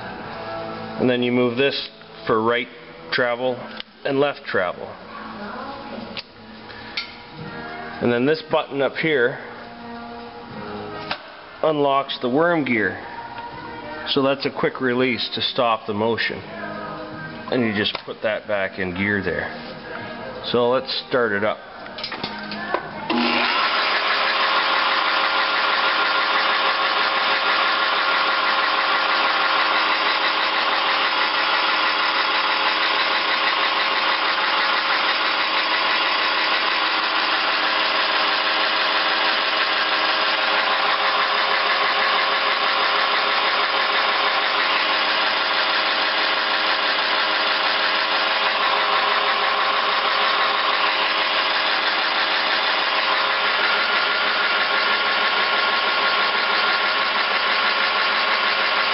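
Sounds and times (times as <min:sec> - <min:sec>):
milling machine whirring: 0:22.0 - 0:58.9
gear whine: 0:23.1 - 0:58.9.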